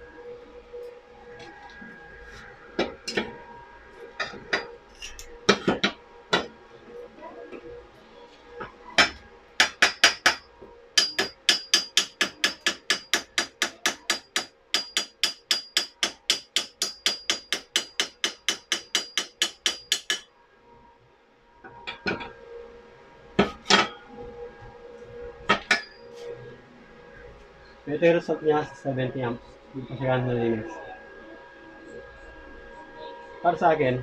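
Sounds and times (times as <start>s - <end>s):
chipping hammer striking metal: 9.0s - 20.2s.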